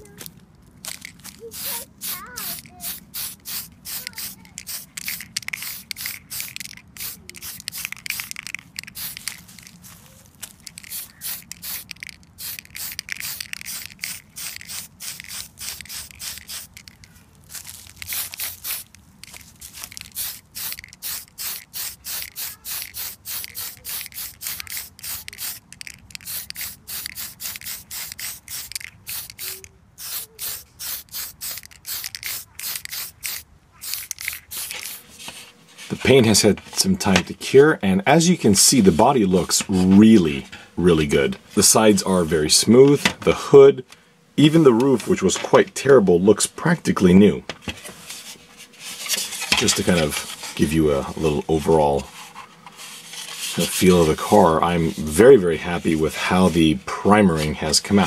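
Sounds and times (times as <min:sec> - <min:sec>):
aerosol spray can hissing: 0:01.0 - 0:36.4.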